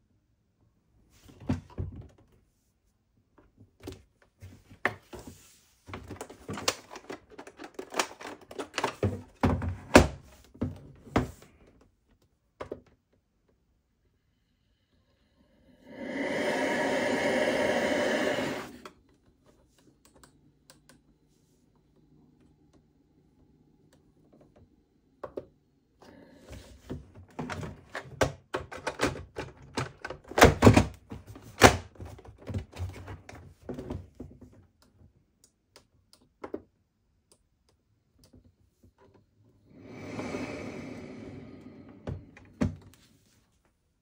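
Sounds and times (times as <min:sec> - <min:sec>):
plastic parts clicking and knocking: 0:05.9 - 0:13.3, 0:27.2 - 0:39.3.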